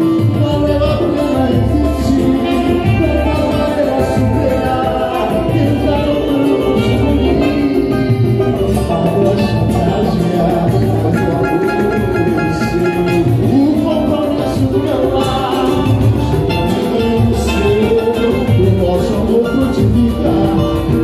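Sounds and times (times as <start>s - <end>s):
man singing: 0.0s - 21.0s
samba band playing: 0.0s - 21.0s.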